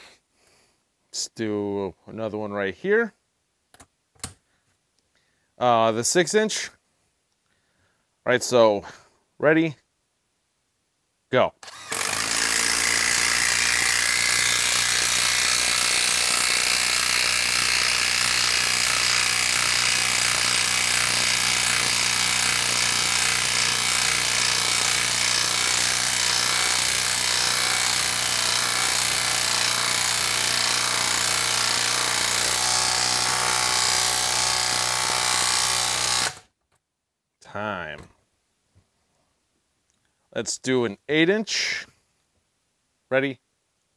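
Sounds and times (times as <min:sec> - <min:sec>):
impact wrench hammering: 0:11.6 - 0:36.4.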